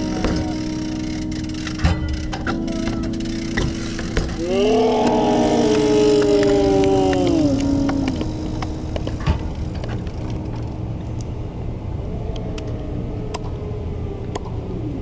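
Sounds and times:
street traffic rumble: 0.0 - 15.0.

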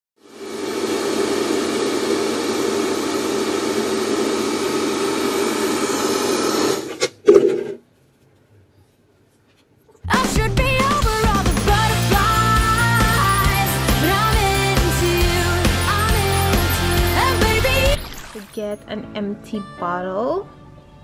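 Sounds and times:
hair dryer running: 0.2 - 6.9, 10.3 - 18.6.

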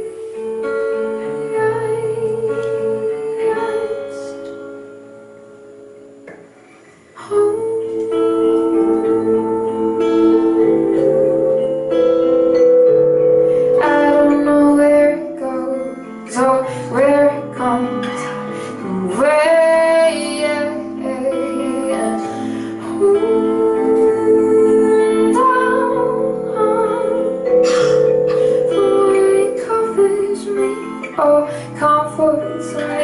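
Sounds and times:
woman singing: 0.0 - 4.9, 7.2 - 12.0, 13.6 - 33.0
acoustic guitar: 0.0 - 33.0
vibraphone: 8.4 - 15.4, 25.2 - 30.6.

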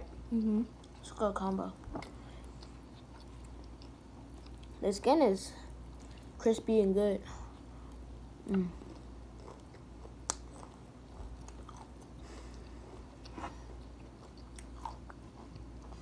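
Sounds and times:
chewing crispy food: 2.0 - 4.8, 5.7 - 6.4, 7.9 - 16.0.

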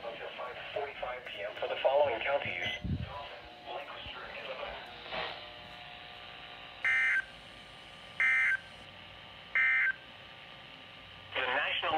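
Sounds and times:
buzzing digital data tones: 6.8 - 8.8.

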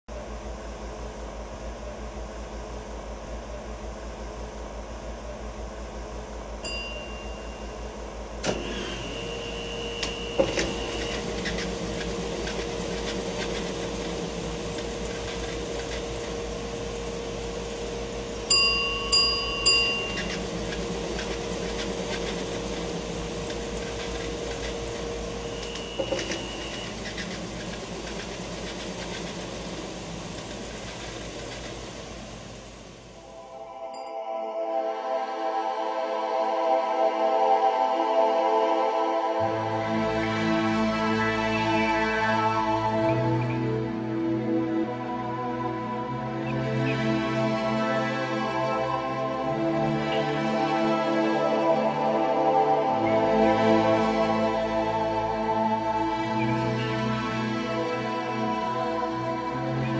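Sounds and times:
film projector hum with flutter: 0.1 - 33.4.

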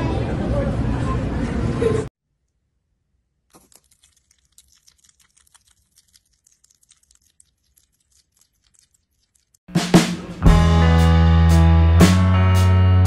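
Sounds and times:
hedgehog chewing crunchy clicks: 3.5 - 9.6.

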